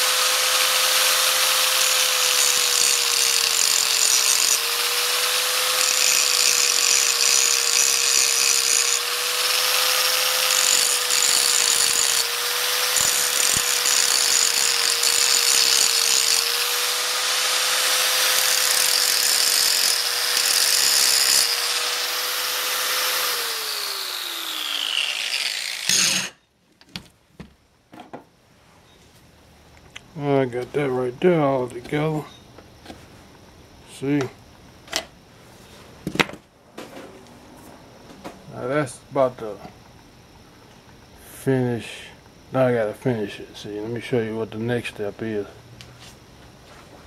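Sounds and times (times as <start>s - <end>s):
angle grinder grinding metal: 0.0s - 26.4s
grinder whine winding down: 21.4s - 26.4s.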